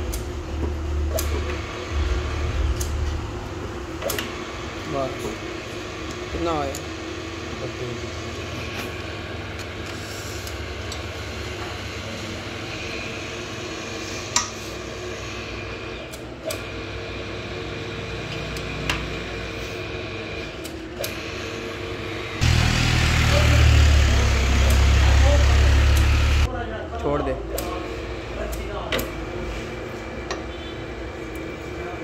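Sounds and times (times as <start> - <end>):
machine mechanical hum: 0.0 - 32.0
loud rough noise: 22.4 - 26.5.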